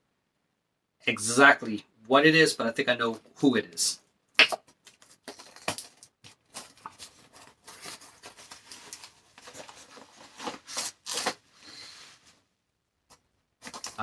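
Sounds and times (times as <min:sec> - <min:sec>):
packaging rustling and tearing: 0:04.8 - 0:11.7, 0:13.6 - 0:14.0.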